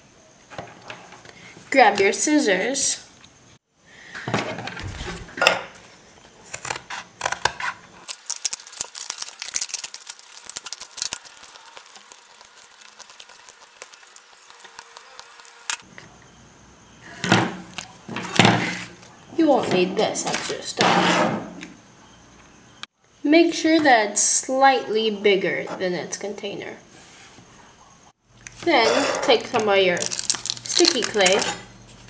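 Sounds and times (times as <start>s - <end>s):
foil crinkling: 6.4s - 15.8s, 29.8s - 32.0s.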